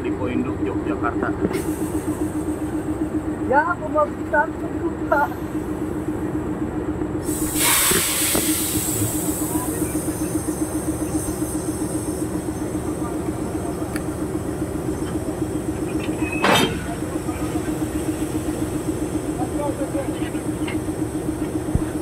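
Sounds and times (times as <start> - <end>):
locomotive engine idling: 0.0 - 22.0
air hissing: 7.2 - 13.0
metallic coupler clank: 16.0 - 17.0.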